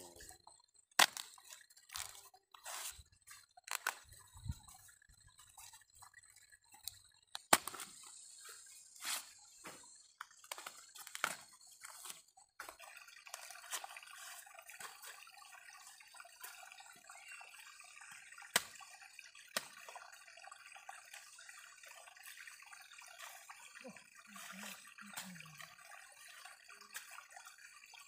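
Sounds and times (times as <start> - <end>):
machete cutting corn: 1.0 - 1.2.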